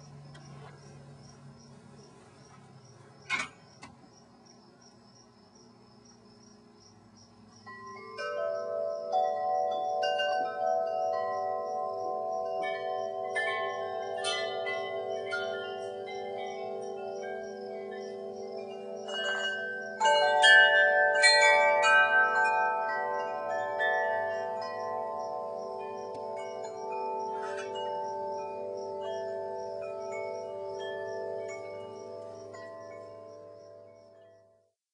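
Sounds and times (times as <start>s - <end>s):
chimes ringing: 7.7s - 34.5s.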